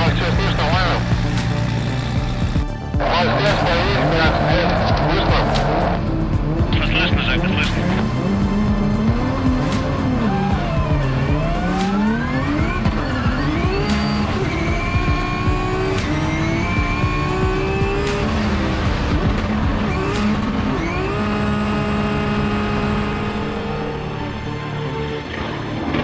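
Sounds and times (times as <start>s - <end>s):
car engine at high revs: 0.0s - 26.0s.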